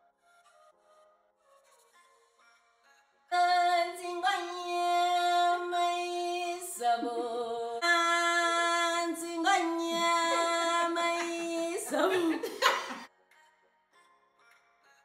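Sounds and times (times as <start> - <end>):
person singing long held notes: 3.3 - 12.4.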